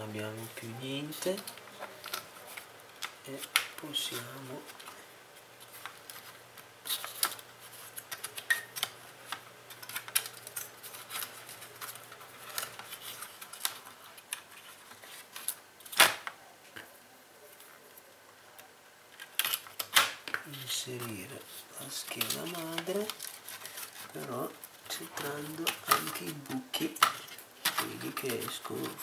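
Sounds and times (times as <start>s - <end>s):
plastic laptop parts clicking: 8.0s - 14.5s.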